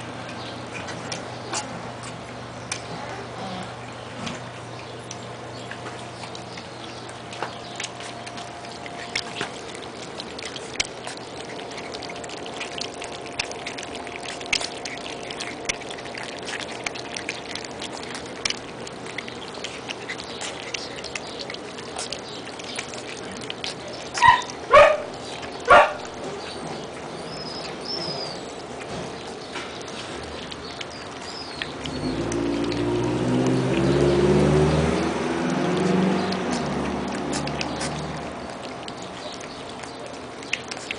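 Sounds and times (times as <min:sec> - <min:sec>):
puppies lapping and chewing: 0:00.0 - 0:40.9
puppy yelping: 0:24.2 - 0:26.1.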